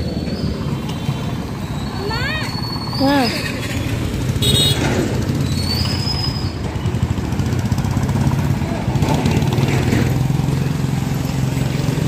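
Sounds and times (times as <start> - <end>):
auto-rickshaw engine idling: 0.0 - 12.0
street traffic: 0.0 - 12.0.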